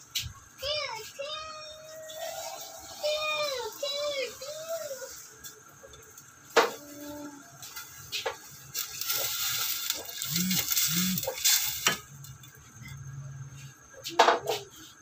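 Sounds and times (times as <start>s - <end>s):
water pouring and splashing: 8.7s - 12.1s.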